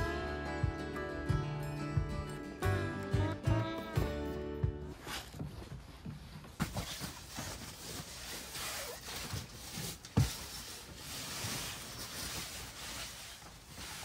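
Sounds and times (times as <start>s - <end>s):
rustling and handling noises: 4.9s - 14.0s.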